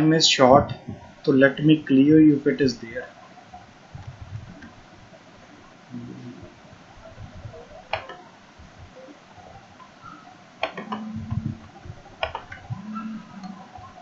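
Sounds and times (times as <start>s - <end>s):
faint room noise: 0.0s - 14.0s
sharp clicks: 12.2s - 13.6s.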